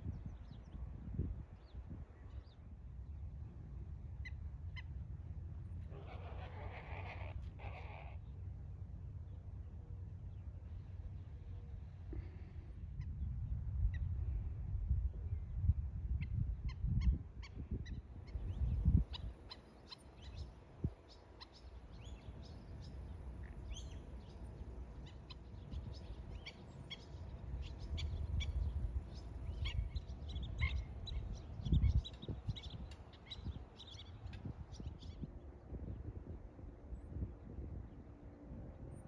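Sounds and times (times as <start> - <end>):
wind rumbling on microphone: 0.0 - 39.0
birds chirping: 17.9 - 35.3.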